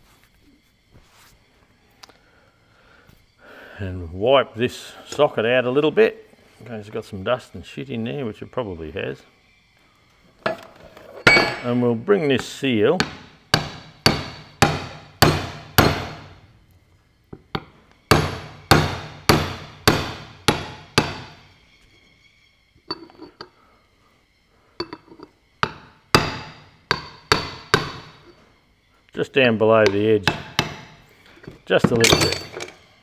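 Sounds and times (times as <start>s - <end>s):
hammer blows on steel: 11.3s - 16.4s, 17.6s - 21.5s, 29.7s - 32.5s
light metal clinks: 22.9s - 23.6s, 24.8s - 25.3s, 31.4s - 32.9s.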